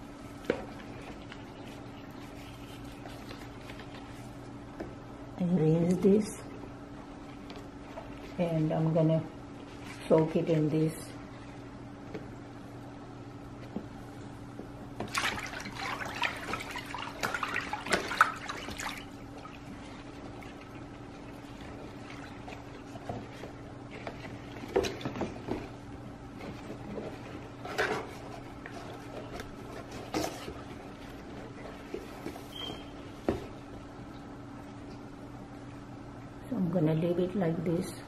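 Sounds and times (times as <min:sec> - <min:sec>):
low steady hum: 0:00.0 - 0:38.0
water splashing in a plastic tub: 0:15.0 - 0:25.8.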